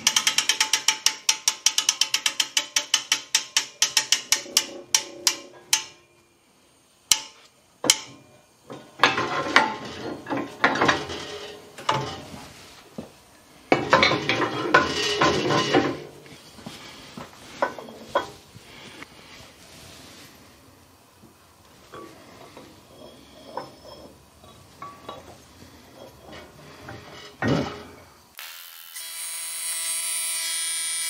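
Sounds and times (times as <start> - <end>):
ratchet-like clicks: 0.0 - 5.9
metallic clatter of parts: 0.0 - 6.1, 7.1 - 19.0, 21.8 - 28.2.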